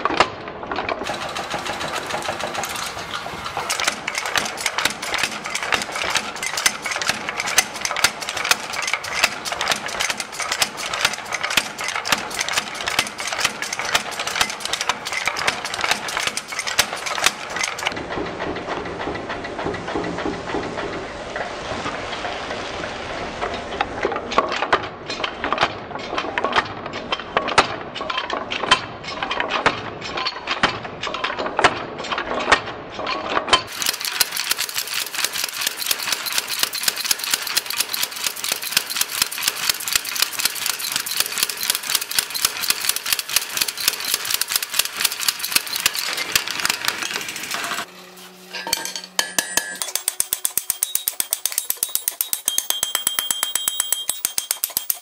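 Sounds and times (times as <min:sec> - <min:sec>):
power hammer pounding iron: 0:01.0 - 0:21.5, 0:33.7 - 0:47.9, 0:48.5 - 0:55.0
hand hammer ringing on anvil: 0:48.5 - 0:55.0.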